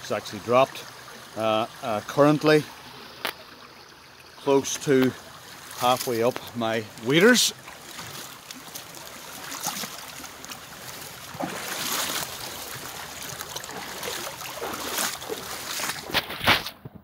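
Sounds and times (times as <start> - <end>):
river flowing over stones: 0.0 - 16.8
sloshes of person wading: 7.6 - 16.7.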